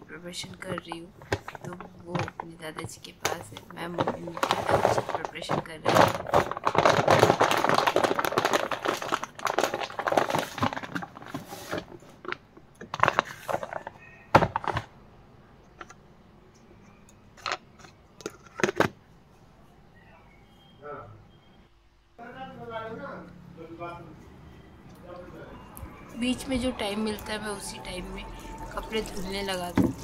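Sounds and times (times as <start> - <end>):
plastic bag crinkling and rustling: 0.5 - 14.9.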